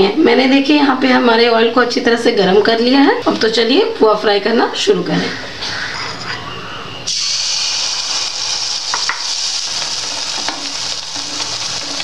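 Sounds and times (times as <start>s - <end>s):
batter sizzling in hot oil: 7.1s - 12.0s.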